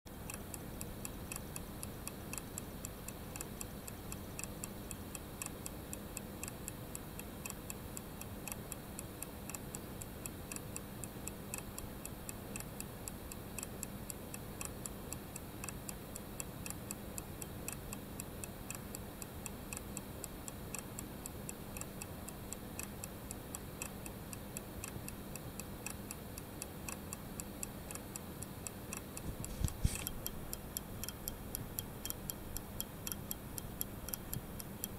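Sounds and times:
pocket watch ticking: 0:00.3 - 0:05.8, 0:14.6 - 0:26.2, 0:26.9 - 0:34.9.

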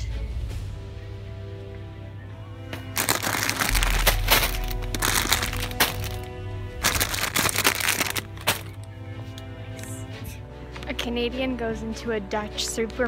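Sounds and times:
background music: 0:00.0 - 0:13.0
plastic packs crinkling: 0:02.9 - 0:08.9.

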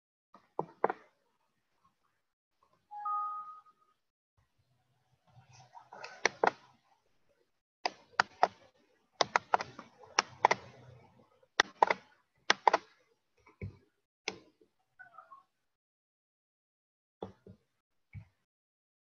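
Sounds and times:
sharp clicks and taps: 0:09.2 - 0:10.6, 0:11.6 - 0:12.9.

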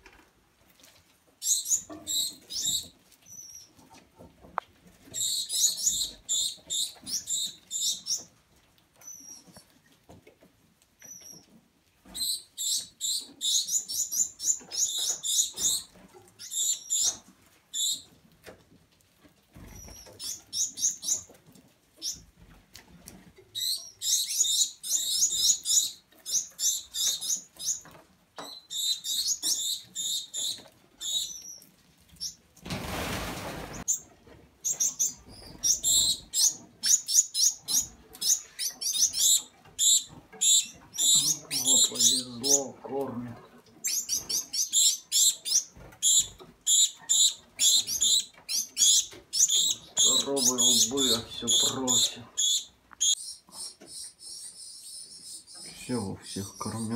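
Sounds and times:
finch fledglings begging calls: 0:23.6 - 0:27.8, 0:34.7 - 0:42.7, 0:43.8 - 0:53.4.

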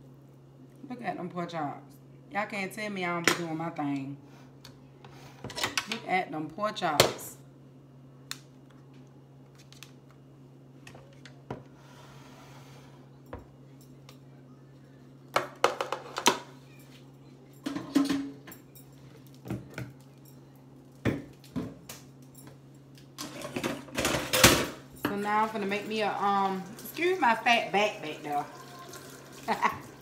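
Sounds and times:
steady low hum: 0:00.0 - 0:28.5
utensils and dishes clattering: 0:17.6 - 0:19.0, 0:23.2 - 0:25.2.

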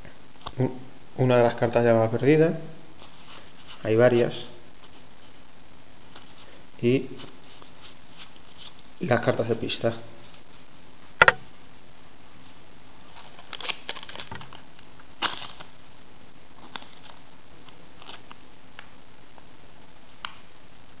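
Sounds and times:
cardboard cards flicking and snapping: 0:13.2 - 0:14.6, 0:15.2 - 0:15.7.

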